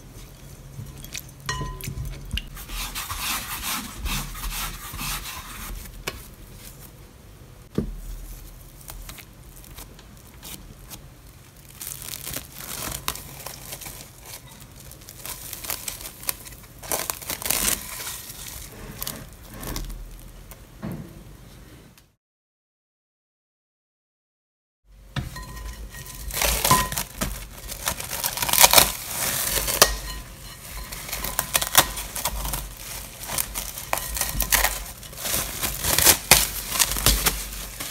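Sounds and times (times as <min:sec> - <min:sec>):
plastic cling film crinkling: 0:07.7 - 0:20.6, 0:25.4 - 0:37.9.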